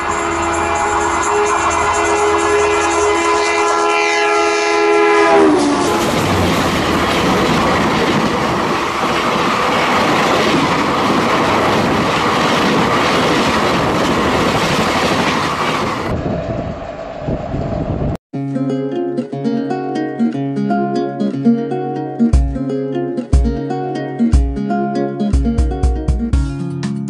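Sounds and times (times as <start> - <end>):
train horn: 0.0 - 10.0
train wheels clattering over rails: 5.6 - 16.7.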